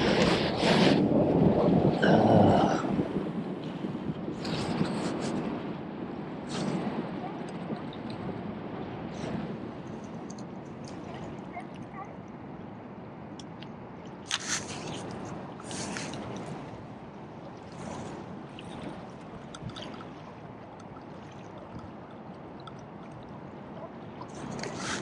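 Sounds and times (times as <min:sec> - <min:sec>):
water sloshing and splashing: 0:06.3 - 0:25.0.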